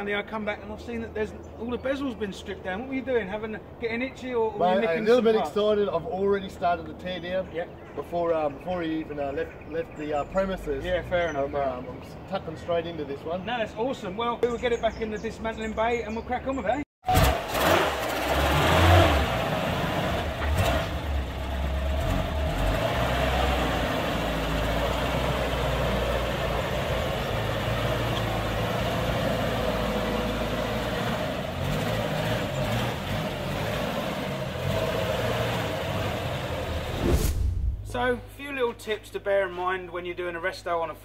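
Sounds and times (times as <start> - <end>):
truck engine running at low revs: 17.2 - 37.0.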